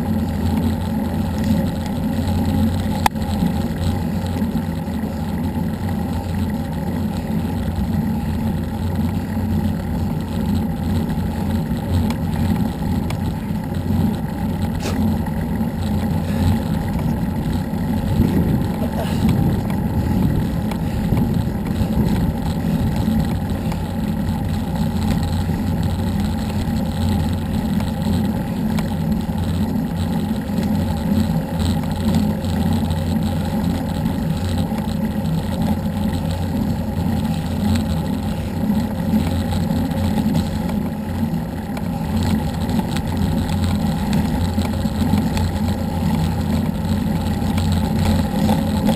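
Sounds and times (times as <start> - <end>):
road noise: 0.0 - 48.9
wind buffeting microphone: 16.3 - 24.7.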